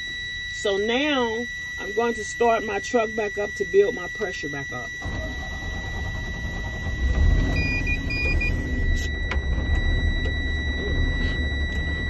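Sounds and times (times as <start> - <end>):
high warning buzzer tone: 0.0 - 12.0
short beeps: 0.0 - 12.0
diesel truck engine running: 5.0 - 12.0.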